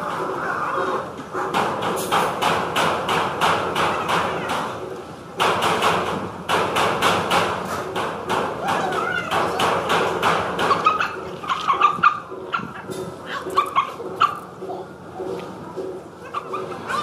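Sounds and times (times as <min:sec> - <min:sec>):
sharp knocks: 0:01.5 - 0:04.7, 0:05.4 - 0:11.3.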